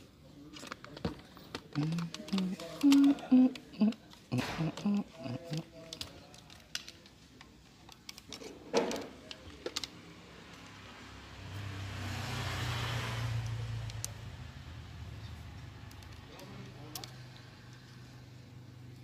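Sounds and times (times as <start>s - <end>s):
plastic parts clicking: 0.5s - 10.0s, 15.8s - 17.9s.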